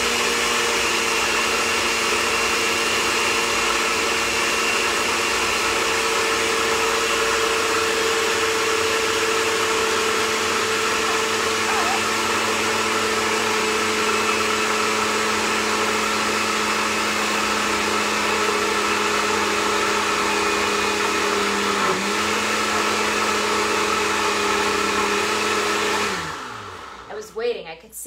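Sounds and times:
blender motor hum: 0:00.0 - 0:27.2.

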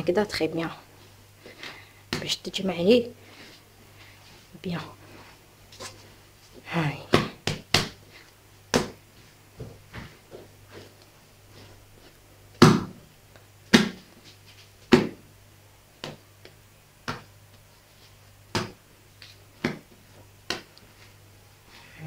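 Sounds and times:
faint low hum: 0:00.0 - 0:22.0
dough thudding on stone worktop: 0:07.1 - 0:08.0, 0:08.7 - 0:09.0, 0:12.6 - 0:13.0, 0:13.7 - 0:14.1, 0:14.9 - 0:15.2, 0:18.5 - 0:18.8, 0:19.6 - 0:20.7.

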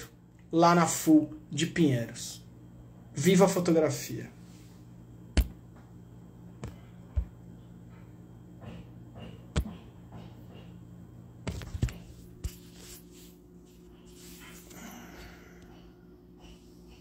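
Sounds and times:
low steady hum: 0:00.0 - 0:17.0
taps and knocks on phone: 0:05.4 - 0:05.6, 0:08.6 - 0:10.4.

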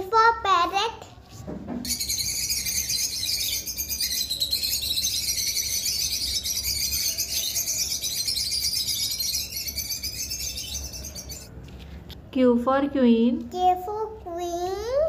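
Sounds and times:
birds chirping: 0:01.8 - 0:11.6.

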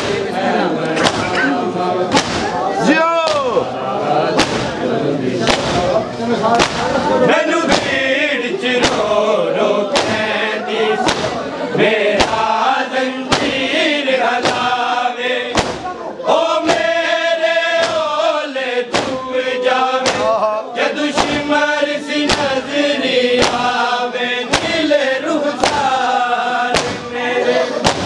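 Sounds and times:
people chanting together: 0:00.0 - 0:28.0
hands beating on chests: 0:01.0 - 0:01.4, 0:02.1 - 0:02.6, 0:04.4 - 0:04.8, 0:05.4 - 0:05.9, 0:06.6 - 0:07.0, 0:07.7 - 0:08.0, 0:08.8 - 0:09.1, 0:09.9 - 0:10.2, 0:11.0 - 0:11.4, 0:12.2 - 0:12.6, 0:13.3 - 0:13.7, 0:14.4 - 0:14.8, 0:15.5 - 0:15.9, 0:17.8 - 0:18.1, 0:18.9 - 0:19.2, 0:20.0 - 0:20.4, 0:21.1 - 0:21.5, 0:22.3 - 0:22.6, 0:23.4 - 0:23.8, 0:24.5 - 0:24.8, 0:25.6 - 0:26.0, 0:26.7 - 0:27.1.

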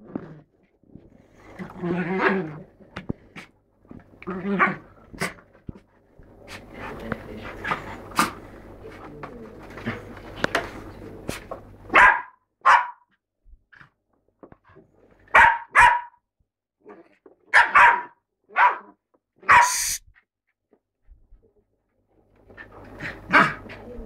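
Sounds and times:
dog barking: 0:11.9 - 0:13.1, 0:15.3 - 0:16.2, 0:17.5 - 0:20.0, 0:23.3 - 0:23.6.

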